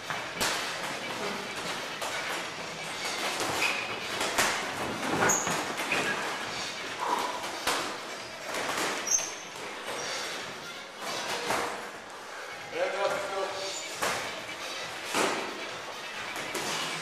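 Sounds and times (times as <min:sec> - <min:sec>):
boxing gloves slapping and thudding: 0:00.0 - 0:06.5, 0:07.2 - 0:10.0, 0:13.8 - 0:17.0
short high squeaks: 0:03.0 - 0:04.1, 0:05.2 - 0:06.8, 0:08.2 - 0:11.6.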